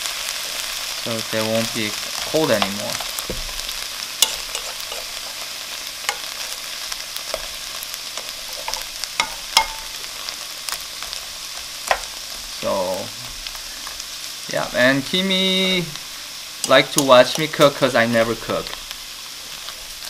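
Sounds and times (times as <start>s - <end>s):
food sizzling in a wok: 0.0s - 20.0s.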